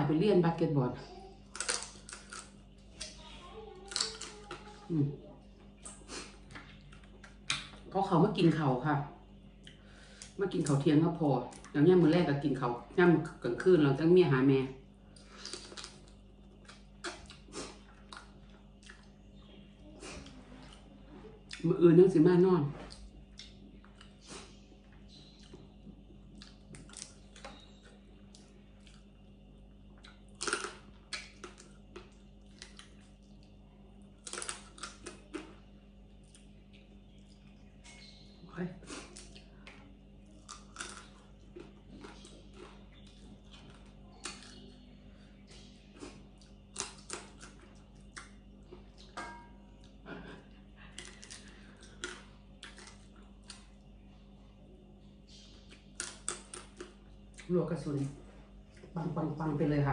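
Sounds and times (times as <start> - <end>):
chewing and crunching: 1.4 - 5.0, 5.6 - 7.9, 15.1 - 21.7, 22.8 - 59.0
chewing smacks: 15.2 - 19.2, 22.9 - 24.5, 25.4 - 29.1, 40.4 - 44.7, 45.5 - 49.2.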